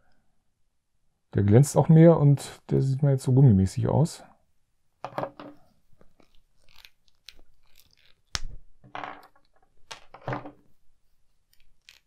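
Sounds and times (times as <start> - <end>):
plastic parts clicking and creaking: 6.0 - 8.5, 11.5 - 12.0.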